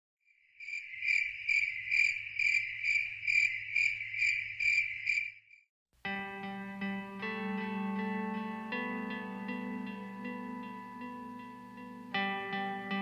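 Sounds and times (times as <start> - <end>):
cricket chirping: 0.3 - 5.6
plucked guitar music: 6.1 - 13.0.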